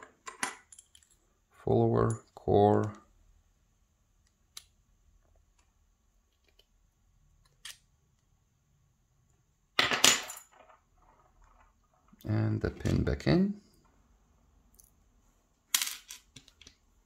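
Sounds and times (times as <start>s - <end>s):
small metal clicks of lock parts: 4.2s - 4.8s, 7.4s - 7.9s.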